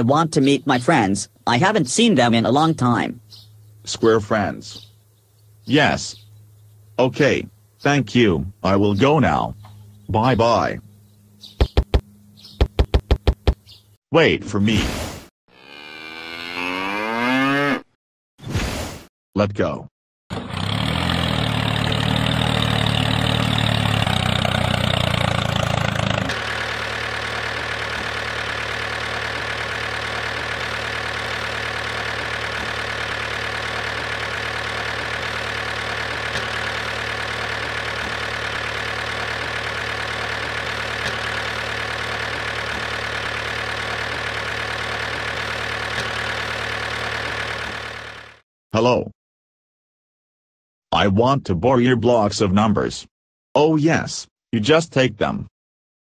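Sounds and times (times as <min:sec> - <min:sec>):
tractor engine running: 0:00.0 - 0:13.9, 0:20.3 - 0:48.4.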